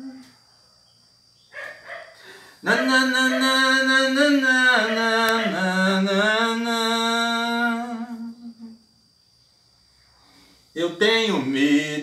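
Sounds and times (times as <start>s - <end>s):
man singing long note: 2.6s - 8.8s, 10.9s - 12.0s.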